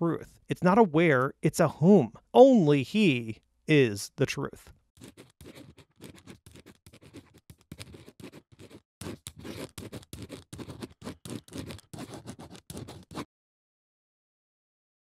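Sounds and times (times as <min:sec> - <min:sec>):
marker scribbling: 0:05.0 - 0:13.3.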